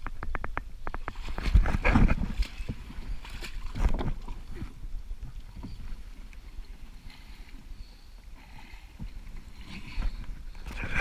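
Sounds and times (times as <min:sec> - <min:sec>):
splashing steps wading through water: 0:01.0 - 0:07.5.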